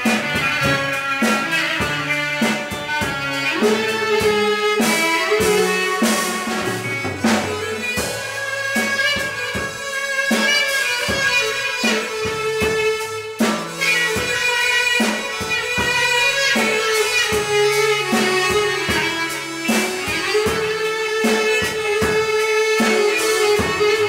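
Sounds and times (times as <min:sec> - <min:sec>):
clarinet melody: 0:00.0 - 0:24.0
drum kit steady beat: 0:00.0 - 0:24.0
guitar: 0:00.0 - 0:24.0
keyboard: 0:00.0 - 0:24.0.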